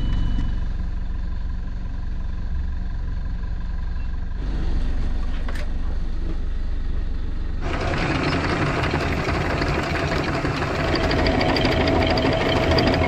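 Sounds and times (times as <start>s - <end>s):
windlass motor running: 4.4s - 13.0s
faint chain ticking: 9.2s - 13.0s.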